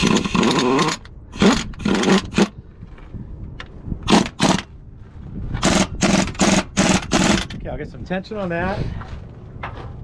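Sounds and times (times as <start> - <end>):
pneumatic impact wrench bursts: 0.0 - 2.6, 4.1 - 4.7, 5.6 - 7.6.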